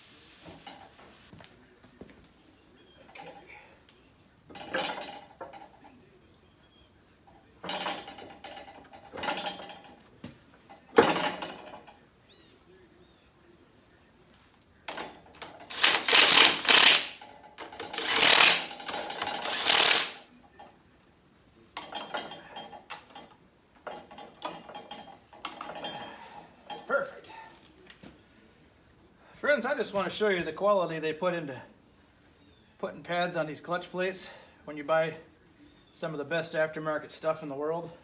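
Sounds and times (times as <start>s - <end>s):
metal parts clanking: 4.5s - 5.8s, 7.6s - 10.1s, 10.7s - 12.0s, 14.9s - 20.7s, 21.8s - 26.9s
cordless driver rattling: 14.9s - 20.2s
light metal clinks: 21.7s - 28.0s.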